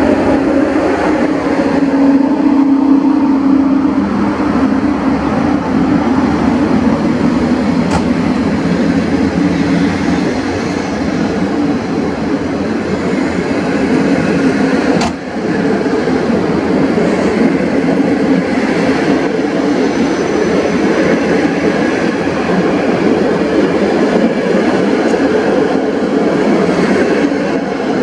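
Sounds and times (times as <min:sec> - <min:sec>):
train wheels rumbling on rails: 0:00.0 - 0:28.0.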